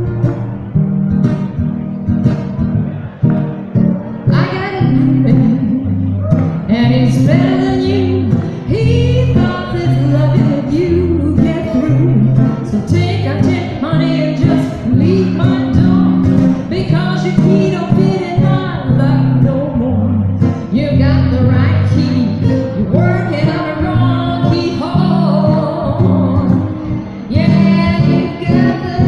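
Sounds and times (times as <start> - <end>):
guitars playing chords: 0.0 - 29.0
woman singing blues: 4.3 - 29.0.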